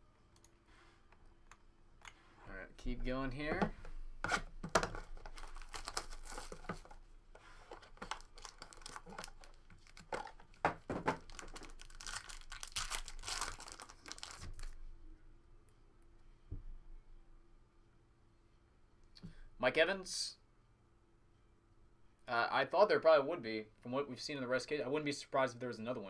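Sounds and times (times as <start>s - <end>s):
foil wrappers crinkling and tearing: 5.1s - 6.7s, 7.8s - 10.6s, 11.2s - 14.8s.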